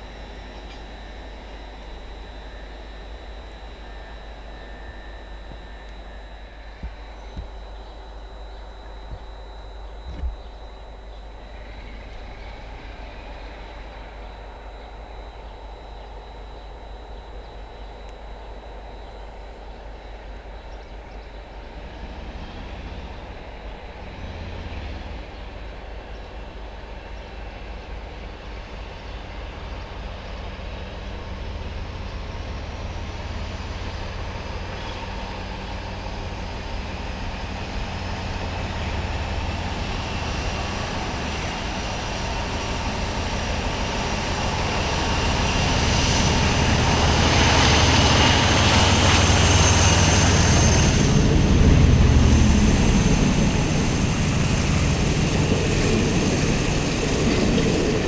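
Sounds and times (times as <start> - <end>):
train rumbling: 26.7 - 58.0.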